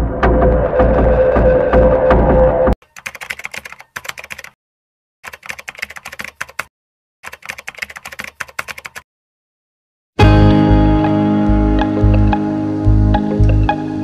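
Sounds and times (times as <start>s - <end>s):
rapid keyboard key clicks: 3.0s - 4.6s, 5.2s - 9.0s.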